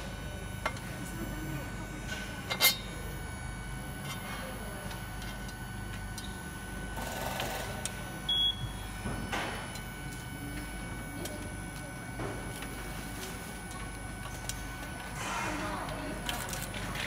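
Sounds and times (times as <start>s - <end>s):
assembly line hum: 0.0s - 17.0s
high beep: 8.3s - 8.8s.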